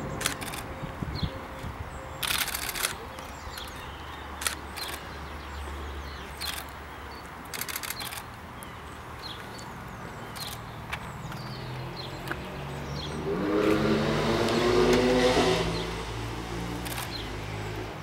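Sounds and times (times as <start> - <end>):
camera shutter clicking: 0.2 - 0.7, 2.2 - 3.0, 7.5 - 8.3, 16.8 - 17.2.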